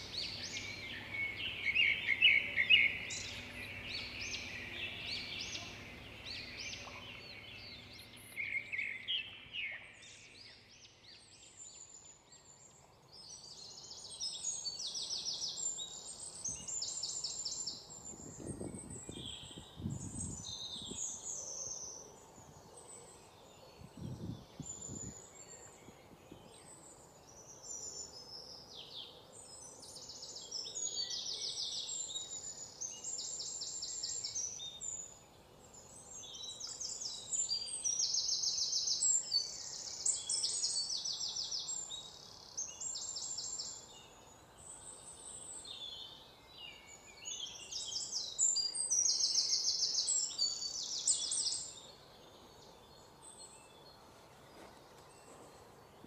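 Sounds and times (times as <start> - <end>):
birds chirping and trilling: 0.0 - 56.0.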